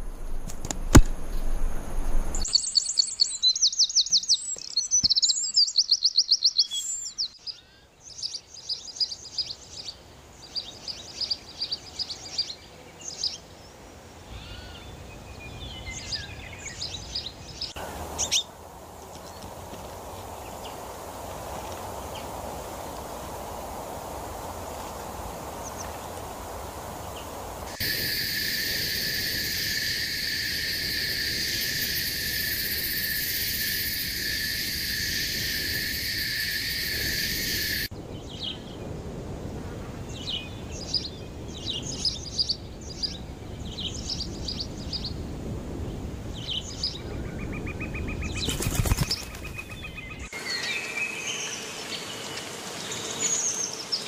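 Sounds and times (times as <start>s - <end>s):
wings fluttering: 0.0s - 2.5s, 48.1s - 50.3s
soft outdoor hiss: 0.0s - 54.0s
small birds chirping: 2.4s - 18.5s, 46.4s - 54.0s.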